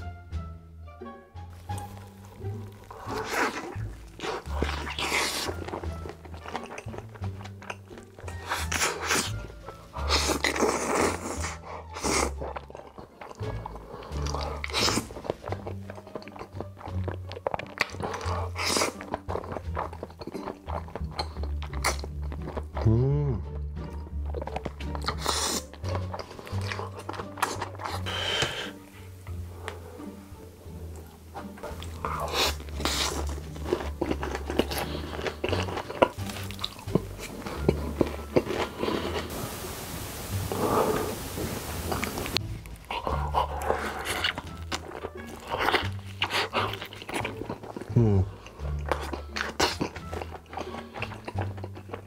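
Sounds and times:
background music with bass: 0:00.0 - 0:12.8, 0:20.6 - 0:51.6
wet chewing and mouth clicks: 0:01.5 - 0:52.0
hissing slurp: 0:38.6 - 0:44.6.

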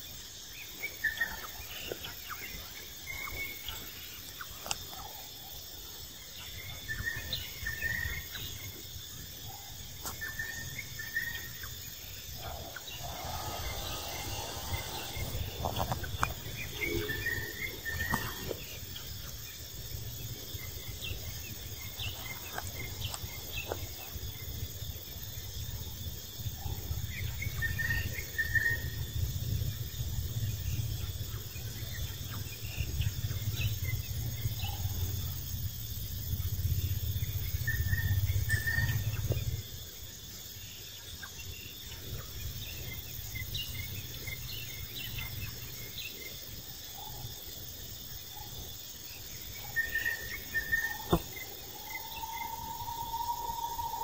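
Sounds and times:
insect chirps: 0:00.0 - 0:54.0
insects droning: 0:00.0 - 0:54.0
low rumble: 0:12.3 - 0:17.9.

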